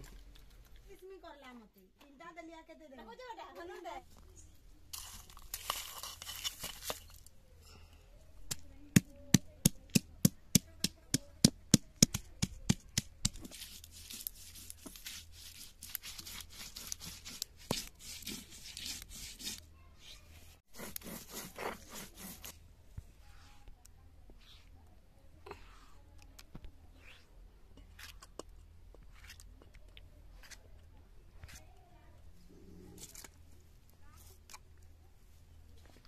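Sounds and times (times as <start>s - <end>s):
stone grinding gritty scraping: 13.3s - 19.6s, 20.7s - 22.5s.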